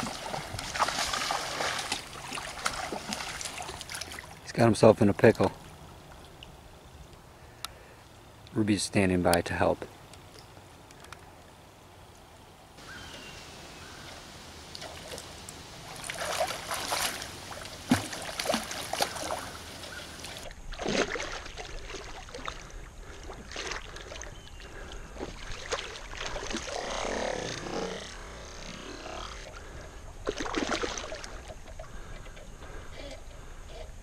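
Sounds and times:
fish splashing in shallow water: 0:00.0 - 0:04.4, 0:13.9 - 0:32.4
flowing water: 0:00.0 - 0:06.8, 0:12.8 - 0:33.2.

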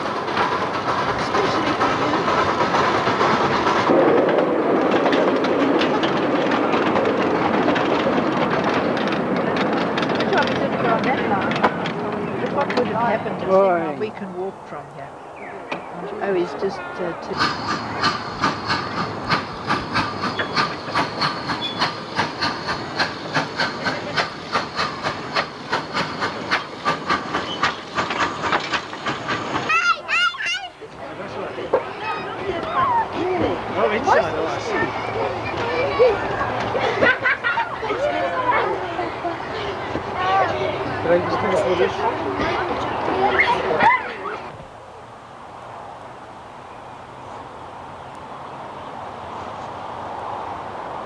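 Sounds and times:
steam locomotive chuffing: 0:00.0 - 0:14.8, 0:16.3 - 0:32.4
wheels clicking on rails: 0:00.0 - 0:14.8, 0:17.2 - 0:44.6
train rumble and rattle: 0:00.0 - 0:51.0
steam hiss: 0:17.2 - 0:29.8.

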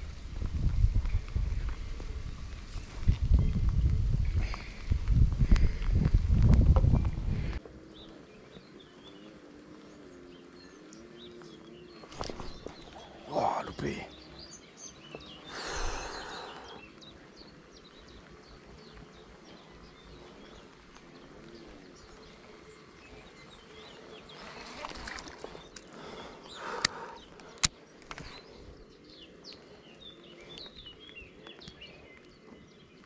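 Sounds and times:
faint bird chirps: 0:07.9 - 0:33.0
sharp clicks: 0:26.7 - 0:28.3.

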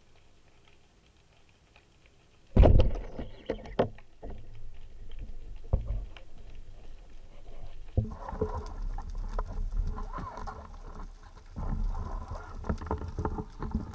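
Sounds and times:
underwater clicks and knocks: 0:02.5 - 0:06.6, 0:07.9 - 0:13.9
underwater water rush: 0:04.7 - 0:13.9.

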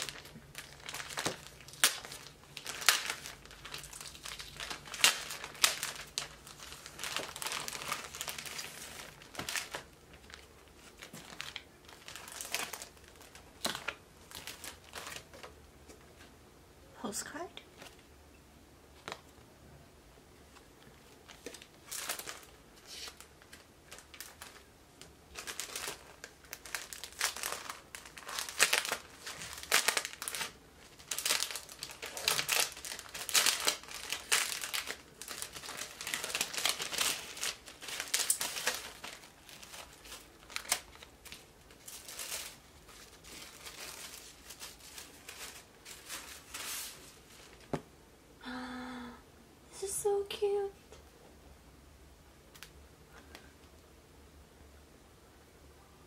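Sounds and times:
plastic shrink wrap crinkling: 0:00.0 - 0:16.3, 0:20.5 - 0:47.8.

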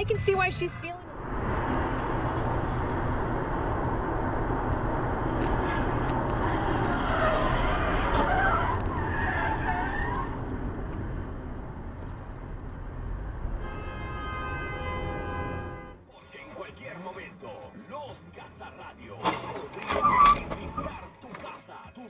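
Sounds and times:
car road and engine noise: 0:00.0 - 0:22.0
tyre squeal: 0:05.5 - 0:10.5, 0:19.2 - 0:21.3.

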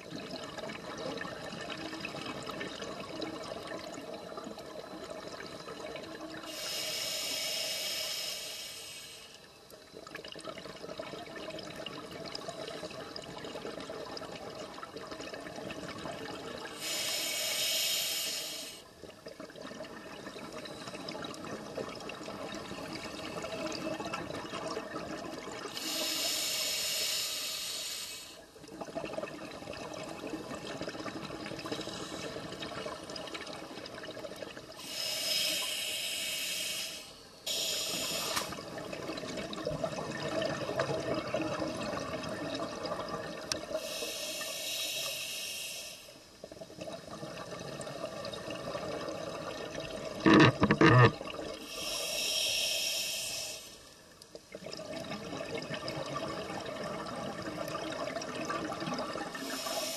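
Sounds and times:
regulator breathing hiss: 0:06.5 - 0:09.4, 0:16.8 - 0:18.9, 0:25.7 - 0:28.5, 0:34.8 - 0:38.6, 0:43.8 - 0:46.3, 0:51.6 - 0:54.0, 0:59.4 - 0:59.9
bubbling exhalations underwater: 0:46.8 - 0:51.6.

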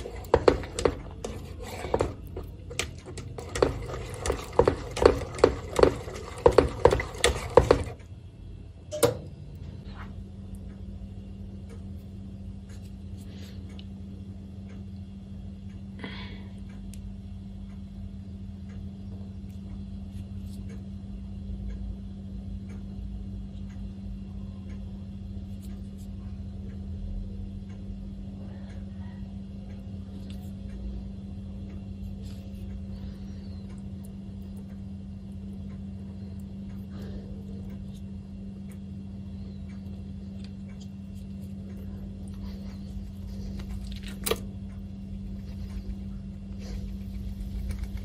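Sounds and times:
faint clicks and taps: 0:00.0 - 0:08.1
low machine hum: 0:00.0 - 0:48.0.

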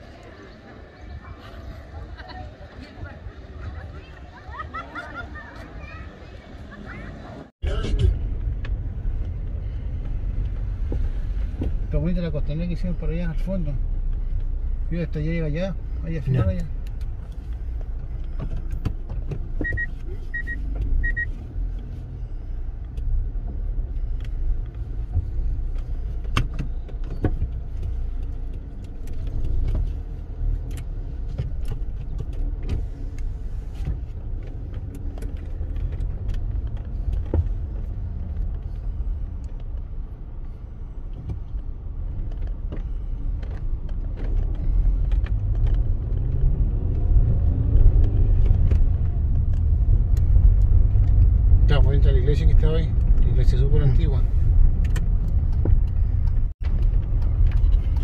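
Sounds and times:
car road rumble: 0:00.0 - 0:58.0
short high beeps: 0:19.6 - 0:21.3.

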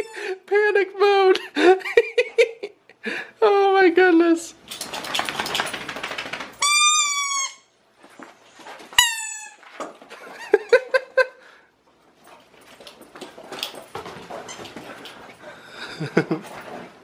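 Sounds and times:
dog toy squealing: 0:06.6 - 0:07.7.

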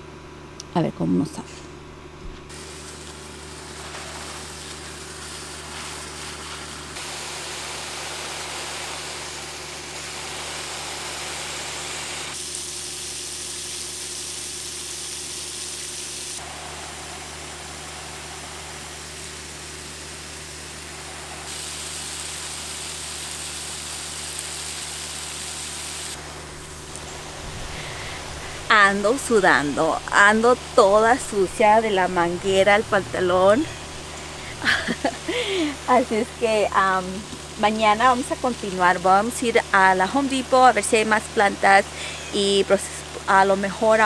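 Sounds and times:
steady low hum: 0:00.0 - 0:12.3, 0:26.1 - 0:44.0
garden hose spray hissing: 0:02.5 - 0:44.0.

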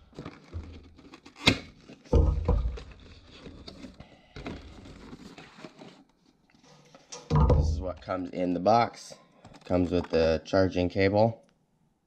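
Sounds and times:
packaging clicks and rustling: 0:00.0 - 0:02.1
heavier knock on box: 0:07.3 - 0:07.9.

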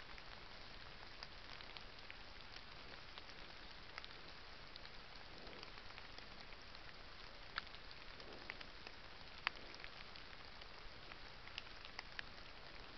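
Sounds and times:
steady hiss: 0:00.0 - 0:12.9.

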